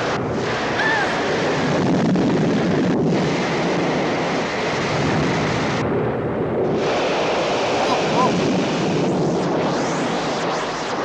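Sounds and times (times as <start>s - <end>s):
wind: 0.0s - 11.0s
surging sea water: 6.6s - 9.4s.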